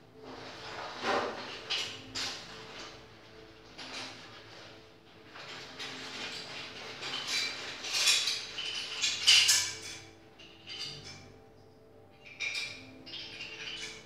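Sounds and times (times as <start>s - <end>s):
plastic combs clattering on tile: 0.5s - 3.0s, 3.6s - 11.3s, 12.2s - 14.0s.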